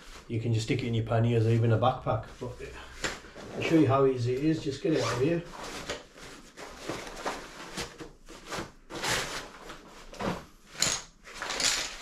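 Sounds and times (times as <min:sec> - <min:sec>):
fabric bag rustling and scraping: 0:04.8 - 0:10.5.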